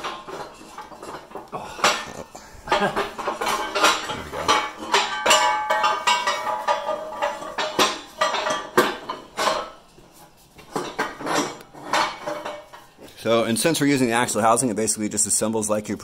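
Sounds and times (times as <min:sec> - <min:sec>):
steel parts clanking and scraping: 0:00.0 - 0:10.0, 0:10.7 - 0:13.0.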